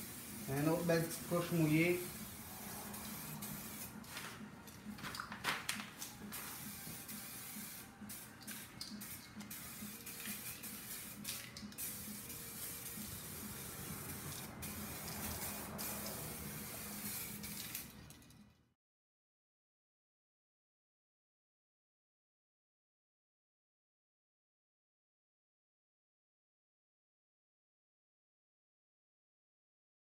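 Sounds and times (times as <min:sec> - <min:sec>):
aerosol can spraying: 0:00.0 - 0:18.0.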